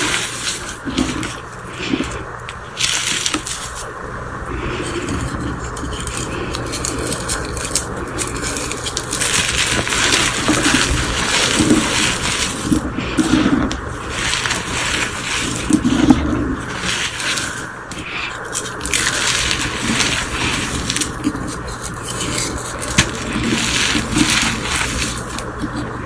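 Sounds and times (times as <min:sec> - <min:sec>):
chalk crunching and crumbling: 0:00.0 - 0:03.9, 0:04.6 - 0:26.0.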